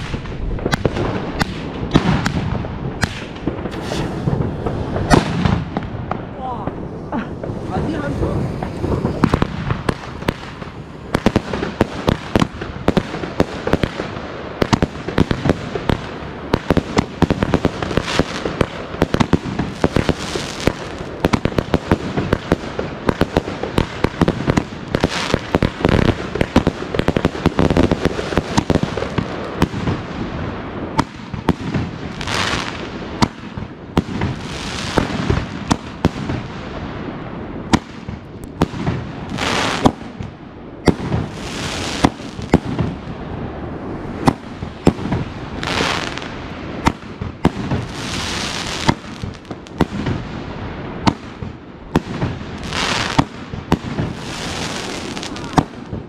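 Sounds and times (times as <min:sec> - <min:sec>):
fireworks bangs and crackles: 0:00.0 - 0:56.0
firework hissing rushes: 0:03.0 - 0:05.7, 0:06.8 - 0:11.8.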